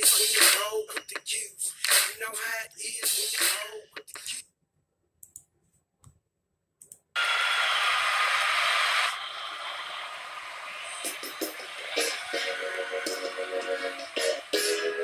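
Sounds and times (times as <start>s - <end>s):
loud hiss-like noise: 7.2s - 12.6s.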